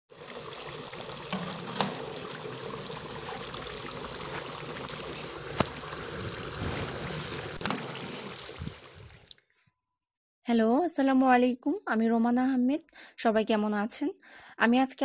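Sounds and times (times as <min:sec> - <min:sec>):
food deep-frying in hot oil: 0:00.1 - 0:09.3.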